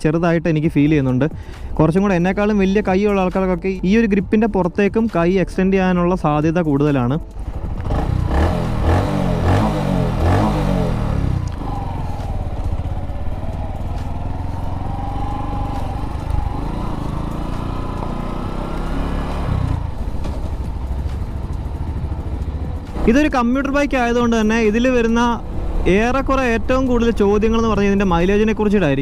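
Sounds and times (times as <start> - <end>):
motorcycle engine: 7.3 - 28.6.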